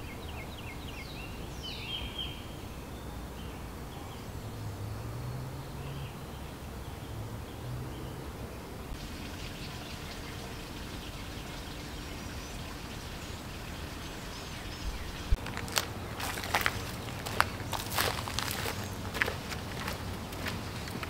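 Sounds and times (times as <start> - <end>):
songbird chirping: 0.0 - 21.0
steady background hiss: 0.0 - 21.0
scattered bird calls: 8.9 - 21.0.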